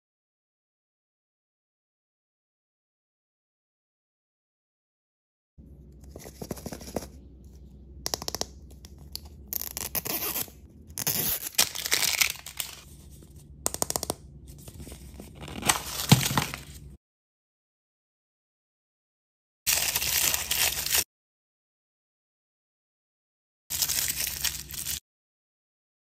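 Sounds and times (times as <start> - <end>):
plastic wrapping crinkling: 11.0 - 12.9, 19.7 - 21.0, 23.7 - 25.0.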